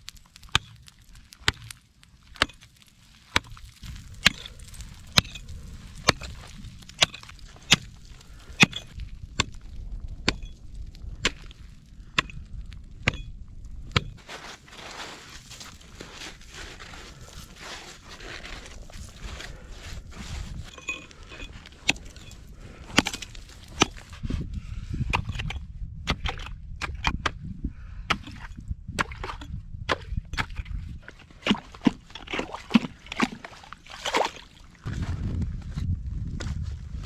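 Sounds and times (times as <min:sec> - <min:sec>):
axe chopping ice: 0:03.3 - 0:04.5, 0:06.0 - 0:07.9, 0:22.9 - 0:24.0
hands scooping ice slush: 0:14.2 - 0:20.8
ice chips crunching: 0:14.2 - 0:24.1.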